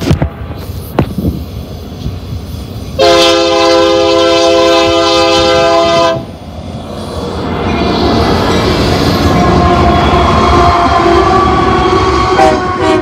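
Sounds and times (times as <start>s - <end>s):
diesel locomotive rumble: 0.0s - 13.0s
wheel noise on rails: 0.0s - 13.0s
locomotive air horn chord: 3.0s - 6.3s, 9.2s - 13.0s.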